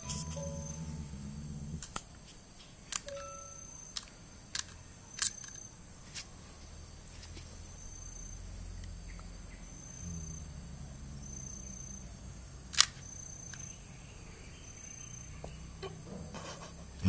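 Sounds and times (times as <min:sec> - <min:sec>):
dog growling low: 0:00.0 - 0:01.9.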